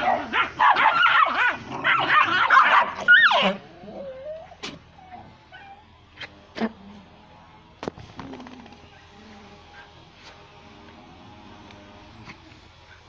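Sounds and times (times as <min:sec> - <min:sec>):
dogs barking and yipping: 0:00.0 - 0:05.9
dog whining: 0:01.9 - 0:05.9.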